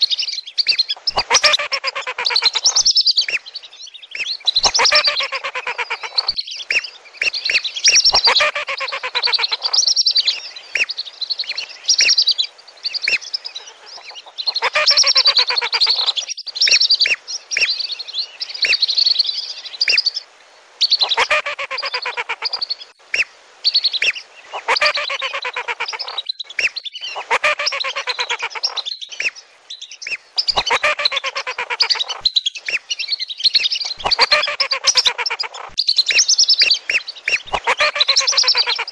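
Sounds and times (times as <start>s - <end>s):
ducks calling with chattering whistles: 0.6s - 3.4s, 4.2s - 10.9s, 13.1s - 17.7s, 21.0s - 23.3s, 24.0s - 29.4s, 30.1s - 38.9s.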